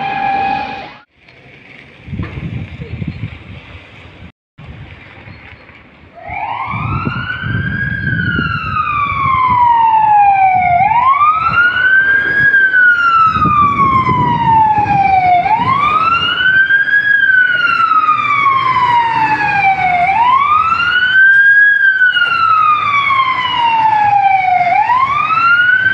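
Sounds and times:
fire engine siren wailing: 0.0 - 1.1, 6.2 - 25.9
truck engine rumble: 5.6 - 25.9.

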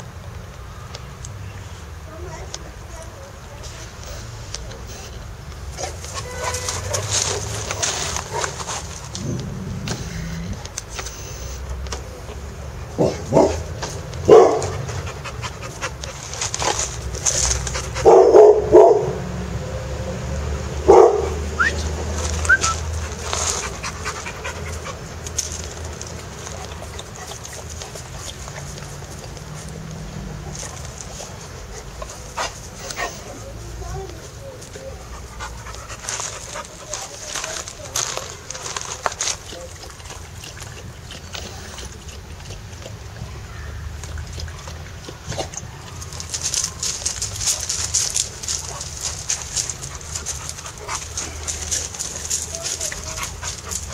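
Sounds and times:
dog panting: 5.7 - 9.2, 12.8 - 18.6, 20.9 - 43.3, 44.0 - 53.9
steady low rumble: 8.9 - 11.6
dog barking: 13.0 - 13.6, 14.3 - 14.8, 18.0 - 19.2, 20.9 - 21.4.

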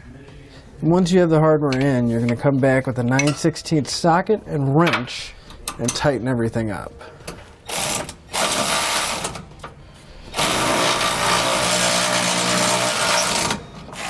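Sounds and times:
power ratchet spinning: 7.6 - 9.4, 10.3 - 14.0.

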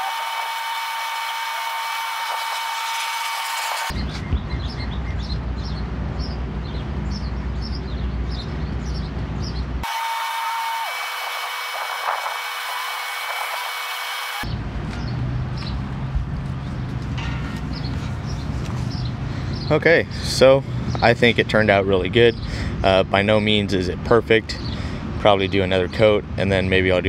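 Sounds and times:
construction machinery whine and hiss: 0.0 - 3.9, 9.8 - 14.4.

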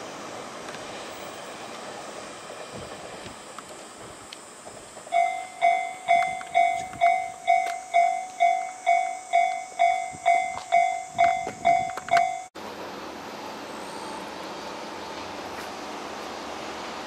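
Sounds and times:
faint passing train: 0.0 - 17.0
level-crossing bell alarm ringing: 5.1 - 12.6.

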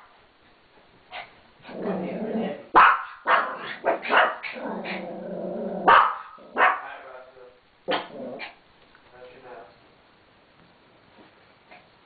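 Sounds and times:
dog growling: 1.6 - 2.7, 3.4 - 6.6, 7.9 - 8.6
dog yapping: 2.8 - 4.6, 5.8 - 6.9.

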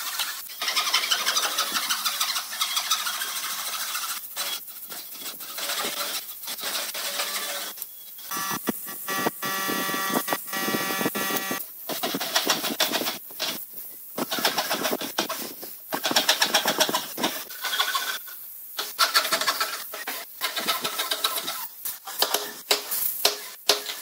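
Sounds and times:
file scraping steel: 0.0 - 7.7.

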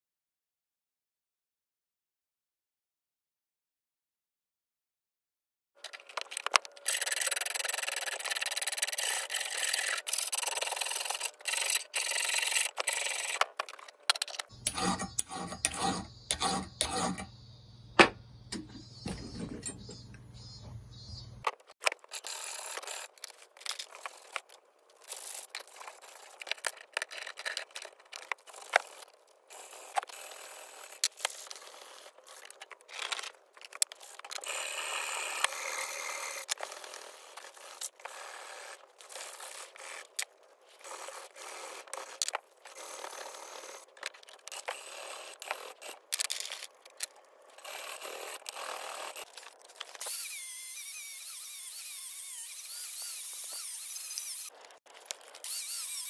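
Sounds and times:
file scraping steel: 14.5 - 17.4.

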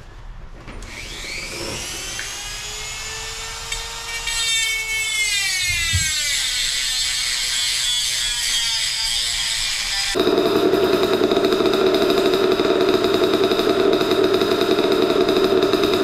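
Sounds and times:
rotary tool whining: 0.8 - 16.0
rough grinding cut on metal: 1.2 - 10.4.

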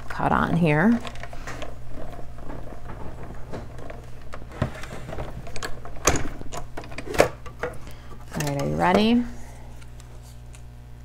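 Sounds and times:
die-cutting machine rollers grinding: 0.0 - 9.2
sharp clicks and knocks: 0.0 - 9.2.

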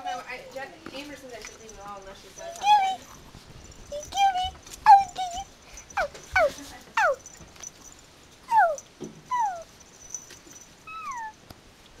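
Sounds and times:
puppy whining and yipping: 2.4 - 7.5, 8.5 - 11.4.

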